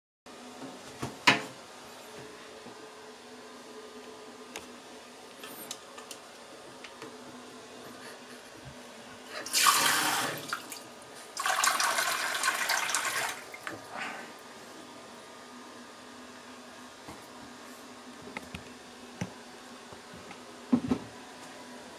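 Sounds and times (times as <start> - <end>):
tap water running into plastic cup: 11.4 - 13.5.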